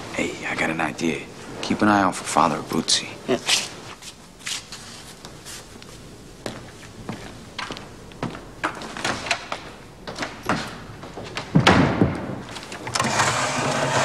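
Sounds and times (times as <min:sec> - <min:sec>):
rustling and scraping: 0:03.4 - 0:06.9
footsteps on wood: 0:05.0 - 0:12.8.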